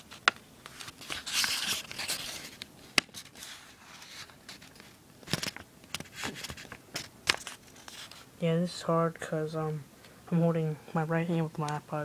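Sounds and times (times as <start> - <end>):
paper rustling and sliding: 0.0 - 8.3.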